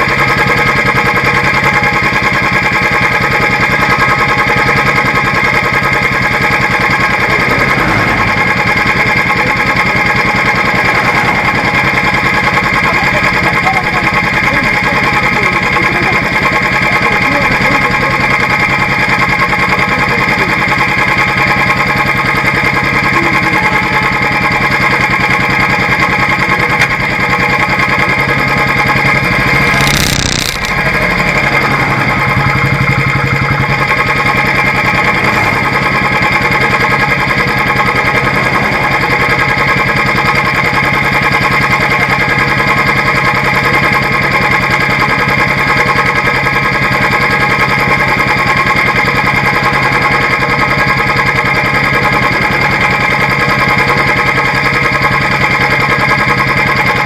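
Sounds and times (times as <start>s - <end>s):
motorcycle engine idling: 0.0s - 57.0s
brief rush of noise: 6.3s - 12.8s.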